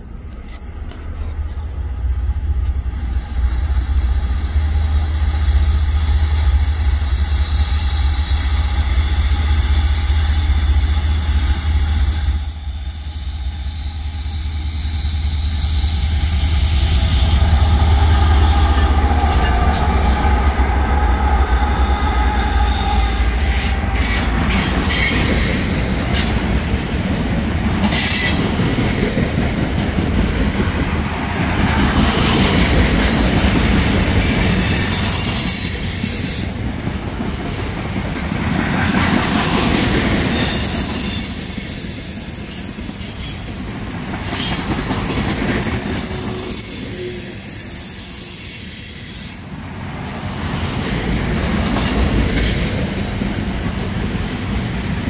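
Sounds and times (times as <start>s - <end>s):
diesel locomotives rumbling: 0.0s - 55.0s
wheels squealing on curve: 34.4s - 49.4s.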